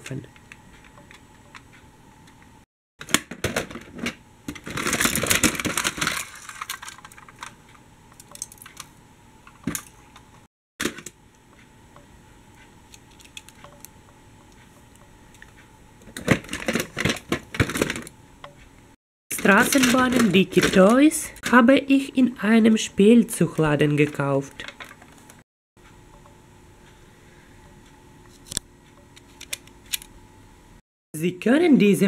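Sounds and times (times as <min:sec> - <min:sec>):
plastic toys rattling in a box: 0:03.4 - 0:07.6, 0:16.2 - 0:18.1, 0:19.4 - 0:21.0.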